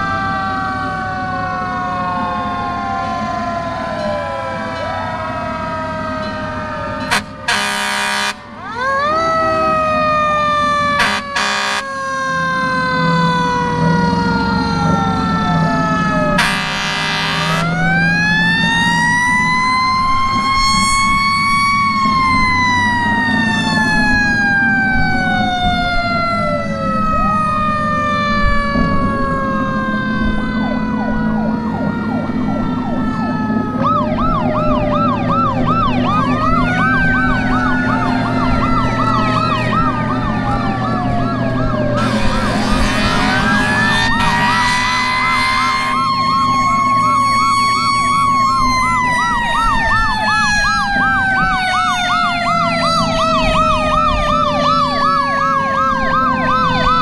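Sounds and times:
fast warbling siren: 0.0s - 57.0s
mechanical siren winding down: 0.0s - 57.0s
wailing sirens: 0.0s - 57.0s.

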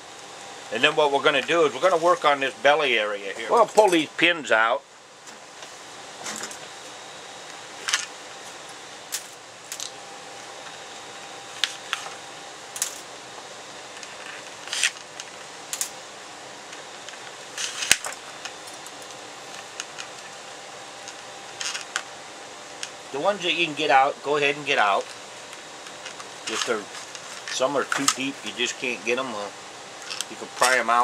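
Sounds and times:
faint steady hum: 0.0s - 31.0s
pliers clicking on metal pins: 15.7s - 16.0s.

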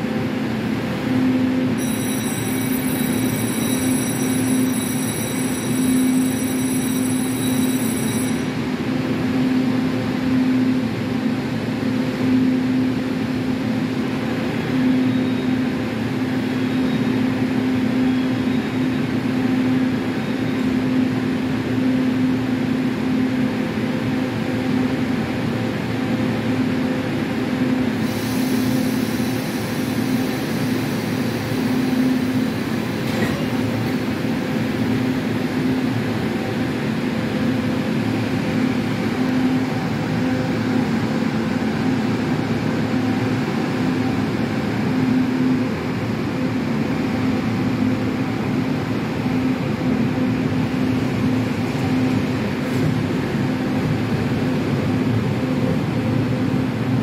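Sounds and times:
train humming: 0.0s - 57.0s
thin high-pitched whine: 1.8s - 8.6s.

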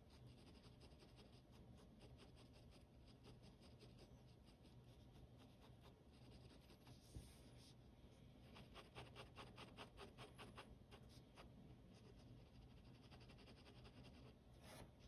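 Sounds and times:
ballpoint pen scratching paper: 0.0s - 6.9s, 8.6s - 11.2s.

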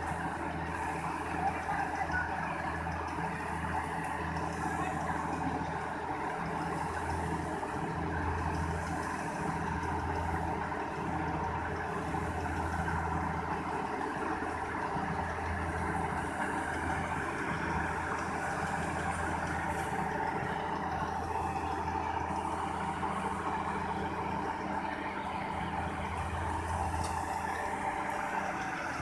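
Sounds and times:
combine harvester running: 0.0s - 29.0s.

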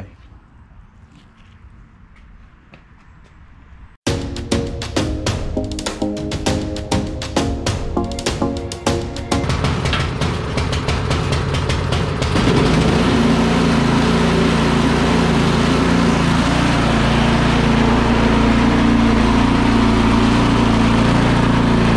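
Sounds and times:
snow blower engine starting: 8.8s - 21.9s.

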